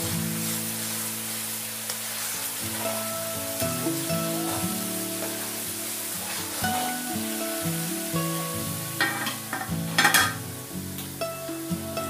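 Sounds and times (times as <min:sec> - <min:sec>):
coconut milk sizzling in a wok: 0:00.0 - 0:12.0
background music: 0:02.8 - 0:12.0
metal ladle knocking on pan: 0:09.0 - 0:10.4
metal lid clattering onto wok: 0:09.0 - 0:10.4.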